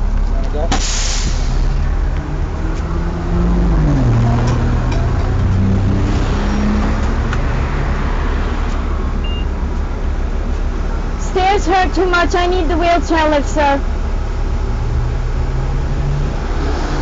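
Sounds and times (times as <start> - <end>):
bus engine idling: 0.0 - 3.5, 6.8 - 16.5.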